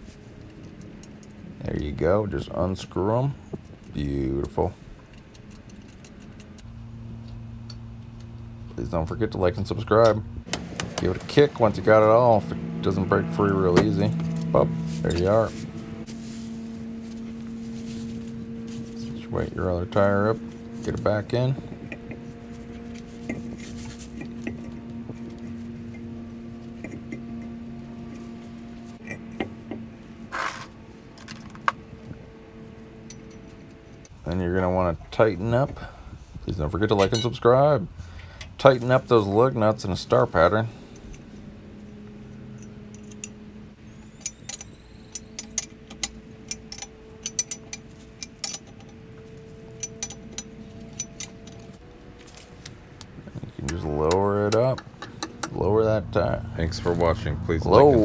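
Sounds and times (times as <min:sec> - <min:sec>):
steady low hum: 0:00.0 - 0:58.0
small metal clicks: 0:03.5 - 0:08.4, 0:42.3 - 0:52.8
metal scrapes: 0:11.3 - 0:27.5, 0:28.1 - 0:31.6.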